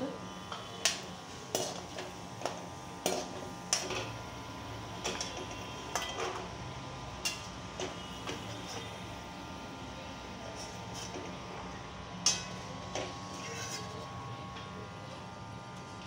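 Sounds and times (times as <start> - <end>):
oil sizzling: 0.5 - 9.3
metal spoon clinking against a pan: 5.0 - 6.4, 12.2 - 12.5.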